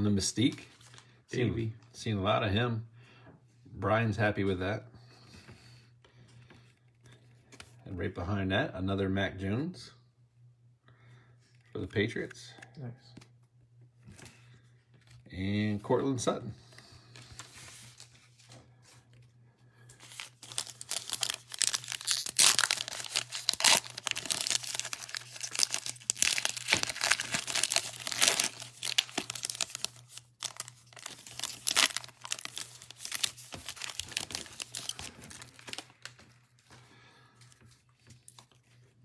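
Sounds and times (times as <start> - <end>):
foil wrapper tearing and crinkling: 20.0 - 36.2.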